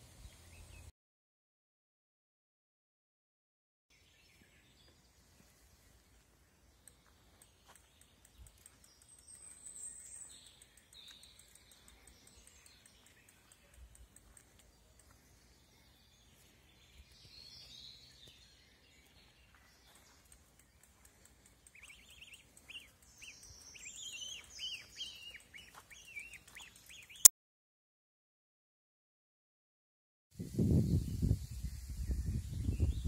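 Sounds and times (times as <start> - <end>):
gosling peeping: 21.6 - 27.3.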